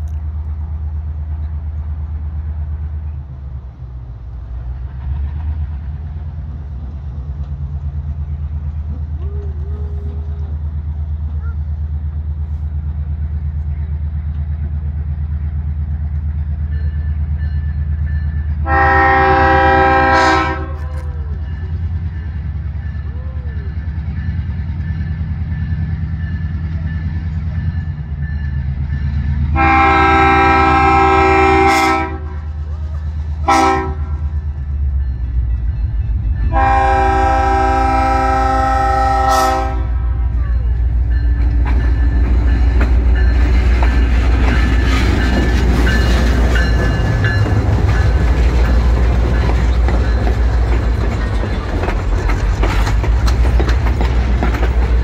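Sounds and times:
diesel locomotive engine rumbling: 0.0s - 55.0s
locomotive horn blasts: 18.6s - 21.1s, 29.5s - 32.5s, 33.4s - 34.4s, 36.5s - 40.4s
train wheels clattering over joints: 40.6s - 55.0s.

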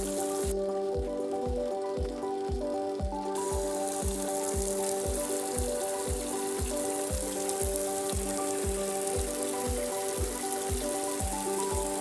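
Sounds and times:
background music with beat: 0.0s - 12.0s
water jet spraying on roof: 3.4s - 12.0s.

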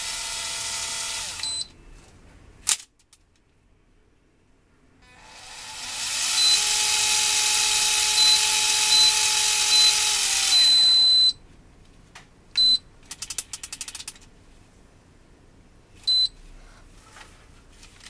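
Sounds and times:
reel beeps: 8.2s - 10.0s, 10.6s - 11.4s, 12.6s - 12.8s, 16.1s - 16.4s.

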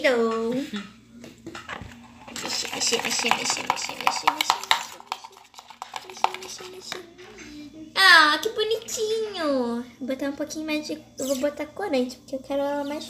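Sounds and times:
metal spoon scraping slime in bowl: 2.2s - 7.1s.

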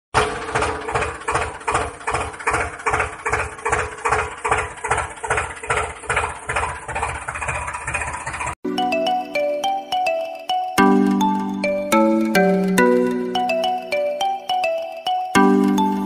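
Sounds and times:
diesel tractor engine chugging: 0.2s - 16.0s
music: 8.6s - 16.0s.

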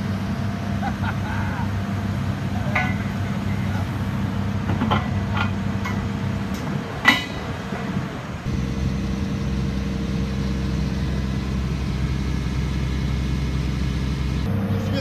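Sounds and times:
engine idling: 0.0s - 6.6s, 8.4s - 15.0s
ringing metal clank: 2.7s - 3.2s, 7.0s - 7.4s.

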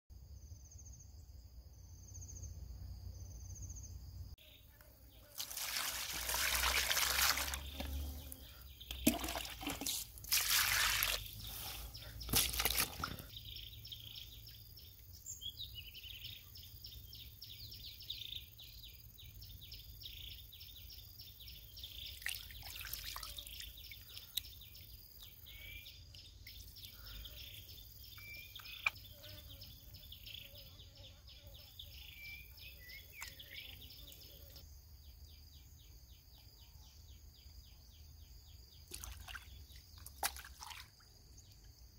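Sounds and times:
squid washed by hand in water: 5.3s - 8.0s, 9.0s - 11.6s
water splashing in a plastic basin: 5.3s - 8.3s, 8.9s - 11.5s, 12.2s - 13.3s, 22.2s - 24.2s, 38.9s - 41.1s.

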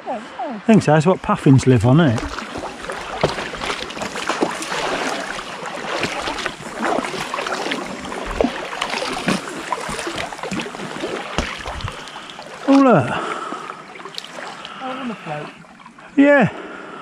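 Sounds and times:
water drips and small splashes: 0.8s - 16.8s
kayak paddles pulling through water: 1.2s - 17.0s.

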